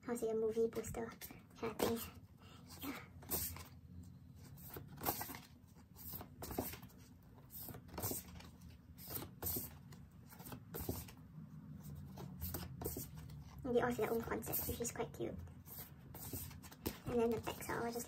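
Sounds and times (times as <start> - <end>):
paper posters rustling: 4.4 - 11.2, 15.7 - 18.0.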